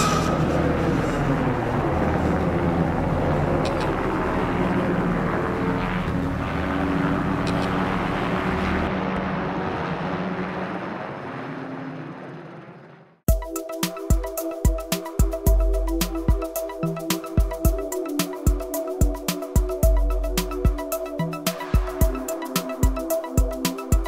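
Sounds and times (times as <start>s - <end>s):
helicopter flying past: 0.0s - 13.3s.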